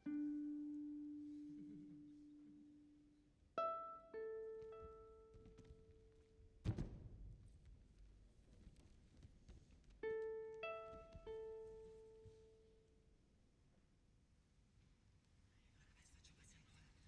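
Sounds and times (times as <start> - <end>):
dull thump: 6.6 - 7.5.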